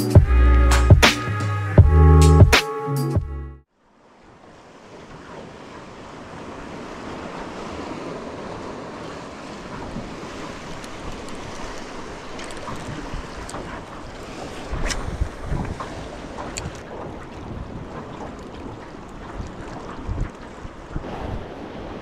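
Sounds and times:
water lapping around boat: 3.8s - 22.0s
wind buffeting microphone: 5.1s - 22.0s.

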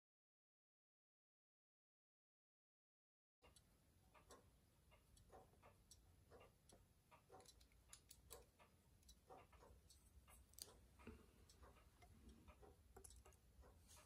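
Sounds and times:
small metal parts clicking: 7.3s - 9.1s, 9.9s - 10.8s, 12.5s - 13.4s.

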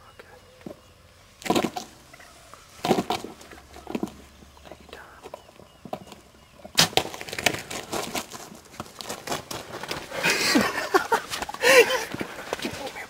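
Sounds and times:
sharp crack of arrow strike: 6.8s - 7.2s
bird wings flapping: 6.8s - 13.0s.

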